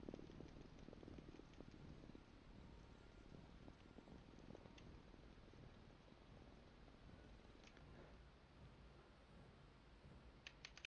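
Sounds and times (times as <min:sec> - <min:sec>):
faint low hum: 0:00.0 - 0:10.9
quick sharp clicks: 0:10.4 - 0:10.9.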